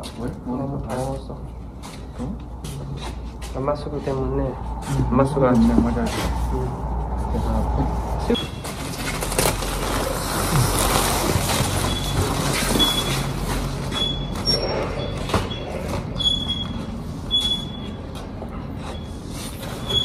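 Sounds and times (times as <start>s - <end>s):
foil panels rustling and crinkling: 8.4s - 13.8s
thin high squeaks: 13.9s - 18.2s, 18.8s - 20.0s.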